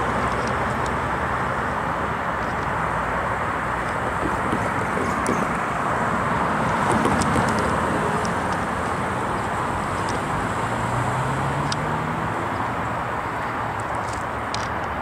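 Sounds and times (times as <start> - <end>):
high-pitched clicks and squeaks: 2.4 - 2.8, 3.8 - 5.8, 6.8 - 10.4.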